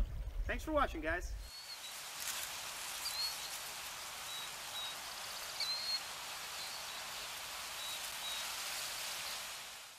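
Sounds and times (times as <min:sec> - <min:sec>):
high bird chirps: 0:01.4 - 0:02.0, 0:03.0 - 0:03.6, 0:04.2 - 0:07.1
river water flowing: 0:01.5 - 0:09.9.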